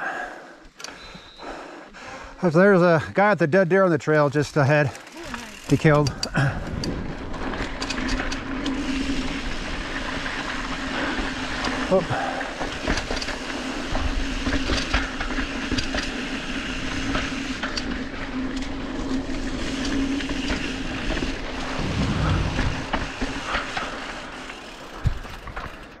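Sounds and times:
wind: 0:00.0 - 0:26.0
bike clicks and rattles: 0:04.0 - 0:26.0
bike tyre noise on dirt: 0:04.6 - 0:26.0.

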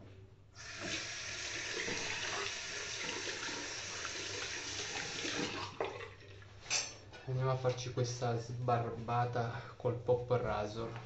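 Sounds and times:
tap water pouring into basin: 0:00.6 - 0:06.5.

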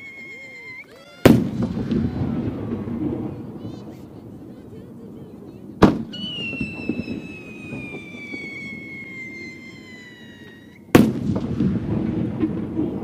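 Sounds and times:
firework mortar bang: 0:01.2 - 0:13.0
firework shell bursting: 0:05.8 - 0:12.7
firework whistle sliding down: 0:06.1 - 0:10.9.

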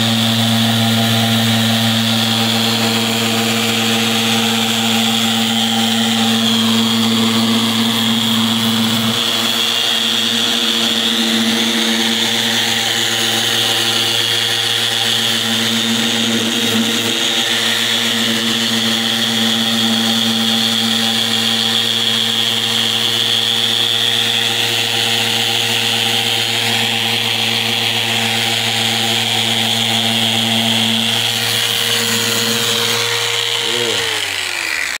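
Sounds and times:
orbital sander running: 0:00.0 - 0:35.0
sander winding down: 0:00.0 - 0:35.0.

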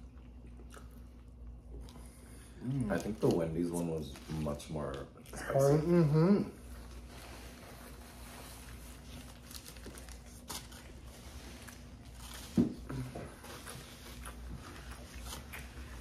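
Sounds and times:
paper wrapper crinkling: 0:02.8 - 0:05.0, 0:06.8 - 0:16.0.

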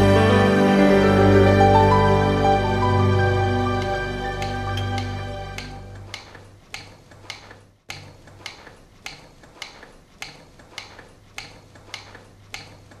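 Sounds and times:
regular ticking: 0:03.7 - 0:13.0.

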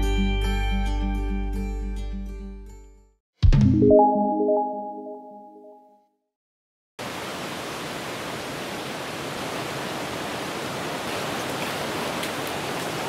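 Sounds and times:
mountain creek rushing: 0:07.0 - 0:13.0.

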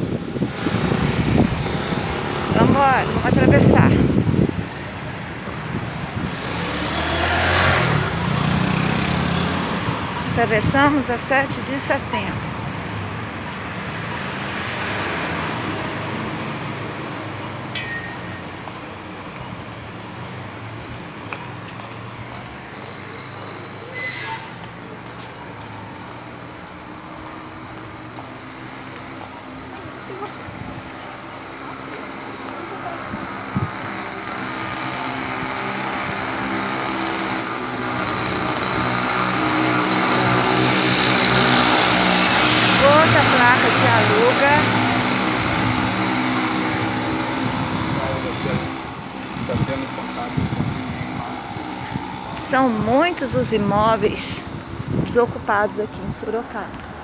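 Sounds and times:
street traffic: 0:00.0 - 0:57.0
vehicle passing: 0:00.1 - 0:57.0
brief high squeak: 0:23.9 - 0:24.5
motorcycle engine running: 0:30.1 - 0:55.3.

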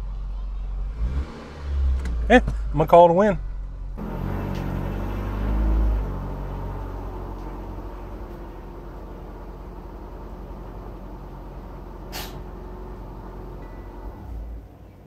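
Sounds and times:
car engine idling: 0:00.0 - 0:15.0
burst of hiss: 0:12.1 - 0:12.4.

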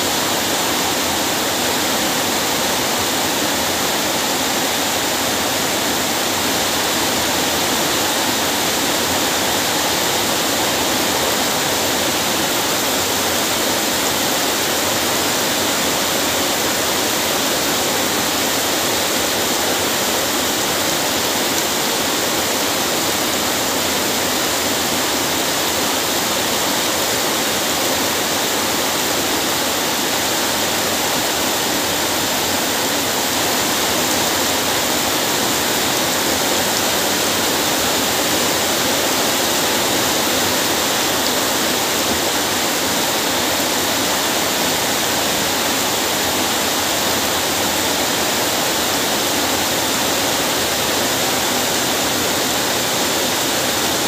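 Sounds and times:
heavy rain splashing into water: 0:00.0 - 0:54.0.

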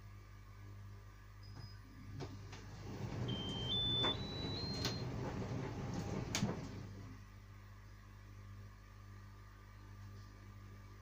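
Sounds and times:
low hum: 0:00.4 - 0:11.0
tumble dryer drum rumbling: 0:02.1 - 0:07.2.

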